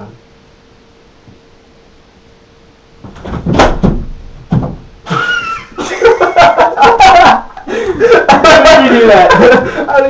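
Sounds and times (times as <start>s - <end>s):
person laughing: 5.1s - 10.0s.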